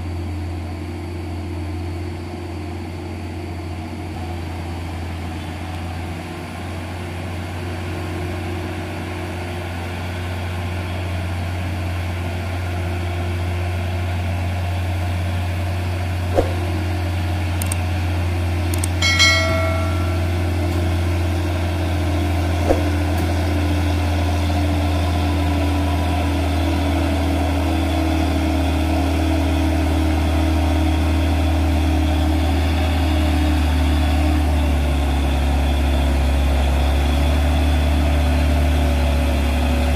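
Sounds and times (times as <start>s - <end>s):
truck diesel engine drone: 0.0s - 39.9s
sharp clicks: 17.6s - 17.8s, 18.7s - 19.0s
brief high-pitched tone: 19.0s - 21.1s.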